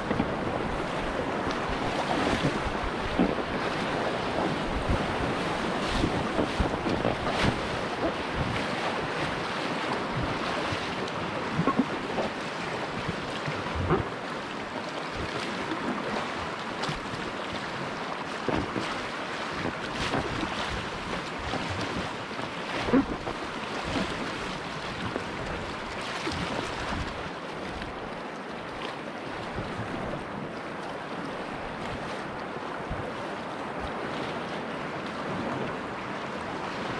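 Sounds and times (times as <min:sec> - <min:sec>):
whitewater rapids rushing: 0:00.0 - 0:27.6
paddle splashing water: 0:00.0 - 0:36.9.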